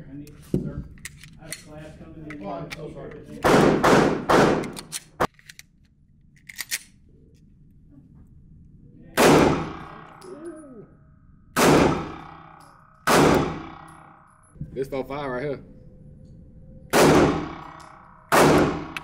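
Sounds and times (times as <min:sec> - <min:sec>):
pistol shots with ringing echo: 0:03.4 - 0:04.8, 0:09.2 - 0:10.4, 0:11.6 - 0:14.3, 0:16.9 - 0:19.0.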